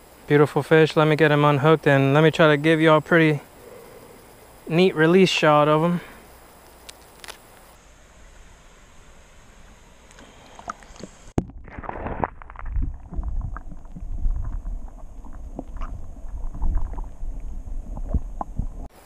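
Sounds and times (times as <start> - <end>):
small underwater clicks and pops: 11.8 - 18.8
muffled underwater gurgling: 12.6 - 18.9.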